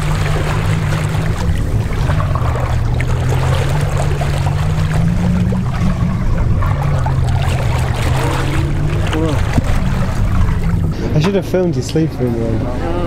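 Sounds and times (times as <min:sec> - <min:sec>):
motorboat engine running: 0:00.0 - 0:13.0
water rushing along hull: 0:00.0 - 0:13.0.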